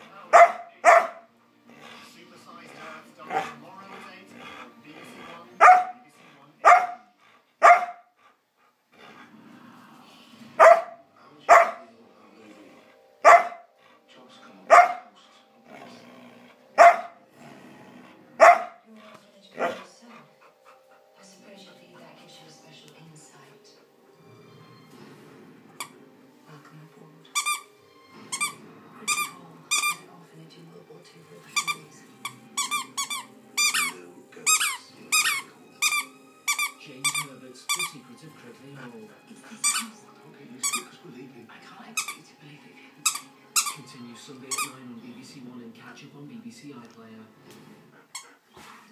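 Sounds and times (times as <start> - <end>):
dog barking: 0.3 - 1.3, 3.3 - 3.6, 5.6 - 6.0, 6.6 - 8.2, 10.6 - 11.9, 13.2 - 13.7, 14.7 - 15.2, 16.8 - 17.2, 18.4 - 18.9, 19.6 - 19.9
squeaky toy squeaking: 27.3 - 30.0, 31.6 - 37.9, 39.6 - 39.9, 40.6 - 40.9, 42.0 - 42.2, 43.0 - 43.9, 44.5 - 44.7.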